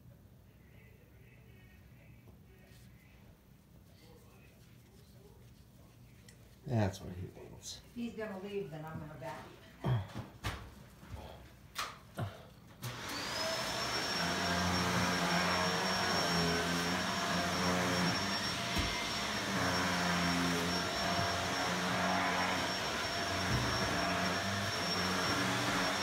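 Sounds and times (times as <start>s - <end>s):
electric motor appliance whining: 12.8s - 26.0s.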